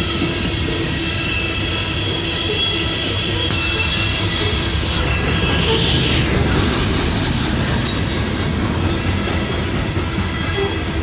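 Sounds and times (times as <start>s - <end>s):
high wheel squeal: 0.0s - 11.0s
steel wheels rumbling on rail: 0.0s - 11.0s.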